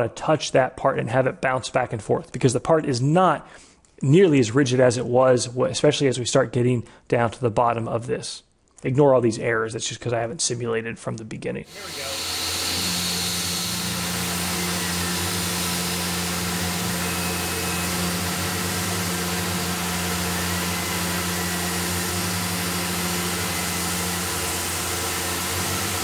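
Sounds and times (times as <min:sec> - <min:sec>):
coolant nozzle hiss: 0:11.7 - 0:26.0
milling machine spindle hum: 0:11.7 - 0:26.0.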